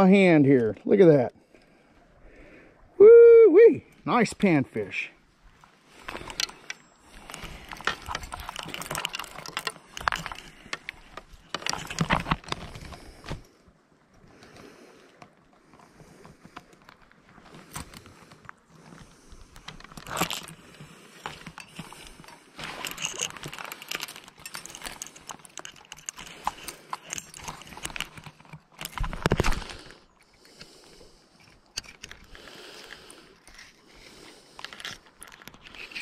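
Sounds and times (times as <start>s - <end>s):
handling rustling and clicks: 5.6s - 13.5s, 15.2s - 30.7s, 31.4s - 36.0s.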